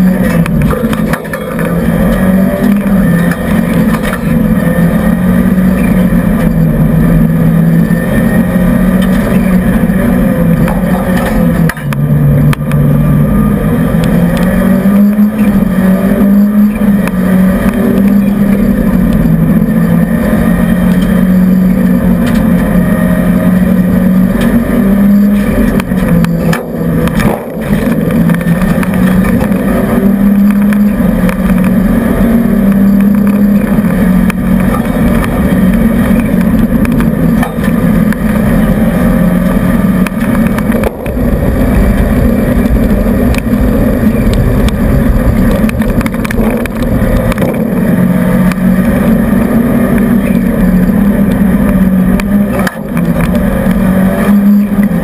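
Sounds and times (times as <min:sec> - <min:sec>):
rally car engine from inside cabin: 0:00.0 - 0:55.0.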